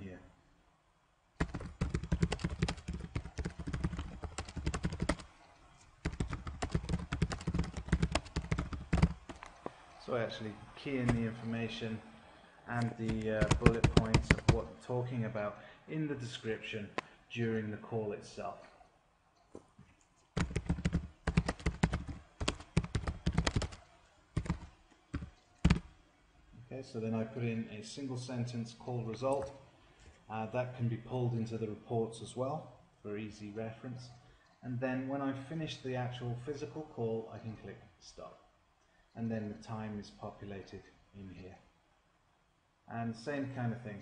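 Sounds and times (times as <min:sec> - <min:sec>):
computer keyboard typing: 0:01.4 - 0:05.3, 0:06.0 - 0:09.6, 0:11.0 - 0:11.4, 0:12.8 - 0:14.7, 0:20.4 - 0:25.9.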